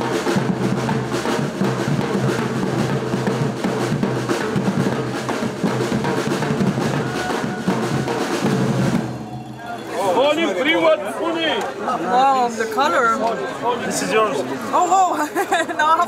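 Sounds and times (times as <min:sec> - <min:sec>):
bass drums beating: 0:00.0 - 0:09.9.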